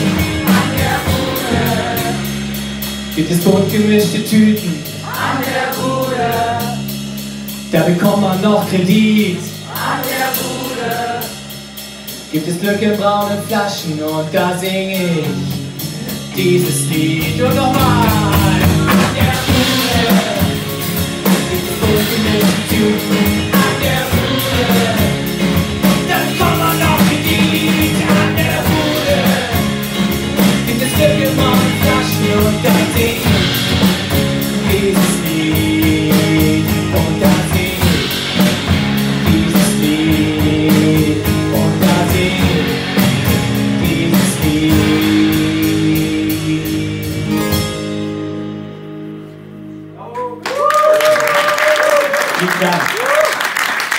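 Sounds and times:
live rock band playing: 0.0s - 53.9s.

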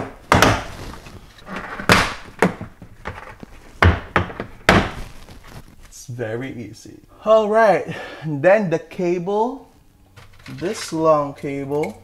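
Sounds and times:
plastic rustling: 0.0s - 6.0s.

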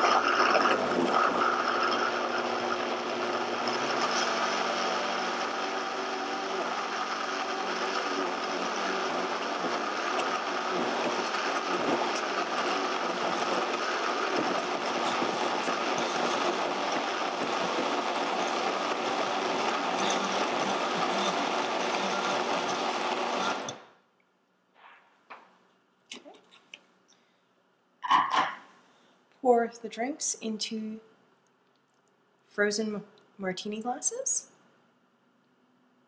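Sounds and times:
blender motor running: 0.0s - 23.9s.

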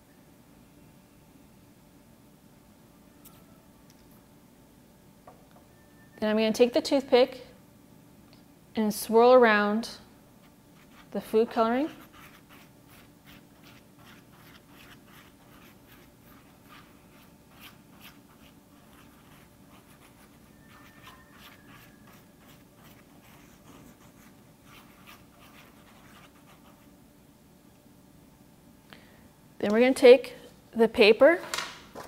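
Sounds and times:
toothpick scratching shaving cream: 11.8s - 26.8s.

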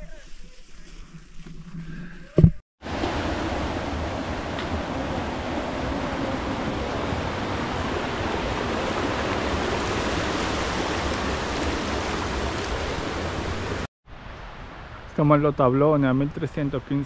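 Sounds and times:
mountain stream rushing: 2.8s - 15.1s.

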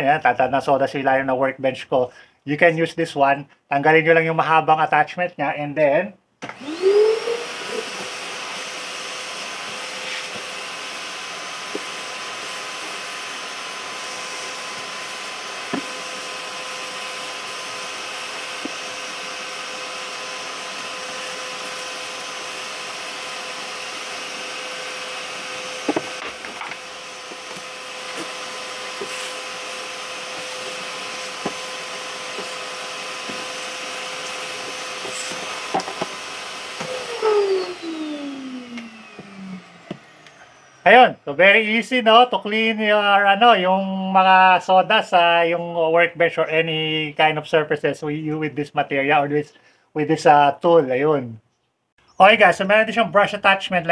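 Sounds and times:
shop vacuum running: 6.4s - 43.1s
hose sucking up sawdust: 6.5s - 43.1s
clicks: 38.7s - 40.4s.

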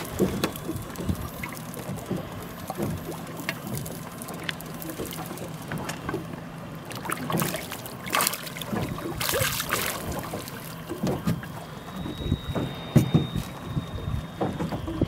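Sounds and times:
fish thrashing and splashing: 0.0s - 15.0s
low motor hum: 0.0s - 15.0s
water slapping boat hull: 0.0s - 15.0s
wind on microphone: 11.0s - 15.0s.

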